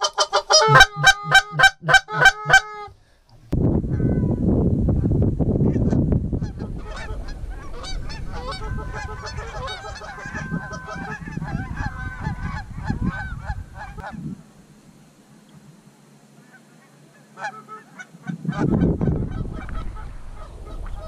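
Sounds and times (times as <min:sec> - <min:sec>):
geese honking: 0:00.0 - 0:03.0, 0:05.6 - 0:14.2, 0:16.4 - 0:21.0
low rumble: 0:03.5 - 0:14.4, 0:18.5 - 0:21.0.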